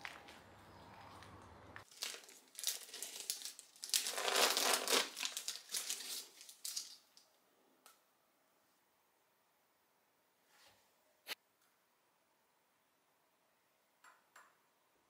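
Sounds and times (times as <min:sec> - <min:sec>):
packet crinkling and tearing: 0:01.8 - 0:07.2.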